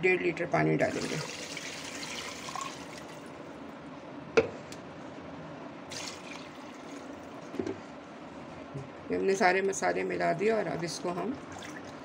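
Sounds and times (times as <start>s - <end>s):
water pouring and splashing into pot: 5.9s - 7.1s, 11.4s - 12.0s.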